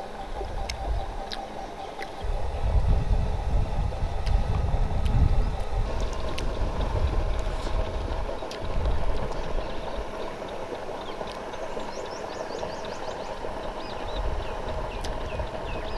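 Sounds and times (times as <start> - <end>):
wind on microphone: 2.1 - 10.4, 12.6 - 15.9.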